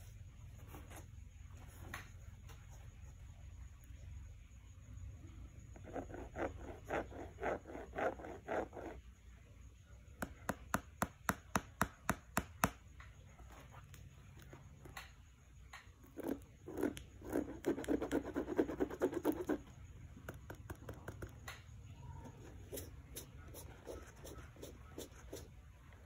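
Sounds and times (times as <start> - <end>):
fingertips tapping on plastic: 19.2 - 21.7.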